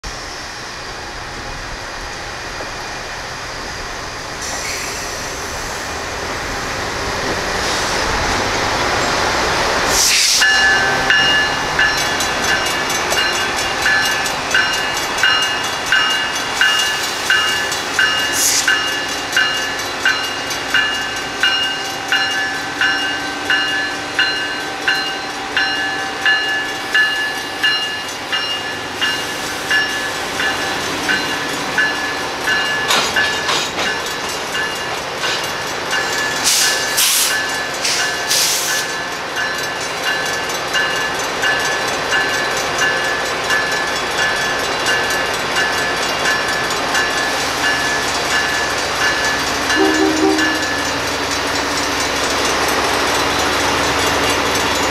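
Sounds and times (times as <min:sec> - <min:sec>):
diesel locomotive engine running: 0:00.0 - 0:54.9
crossing signal bells ringing: 0:08.8 - 0:54.9.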